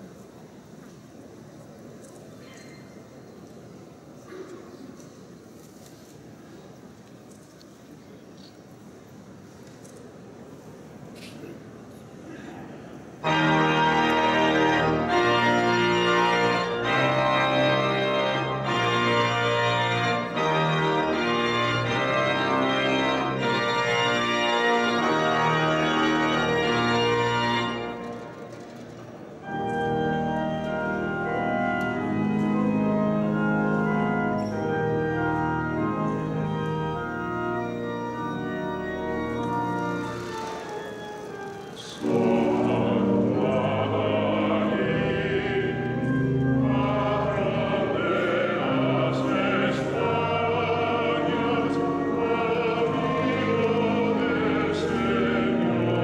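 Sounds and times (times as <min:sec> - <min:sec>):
pipe organ chords: 0:13.1 - 0:56.0.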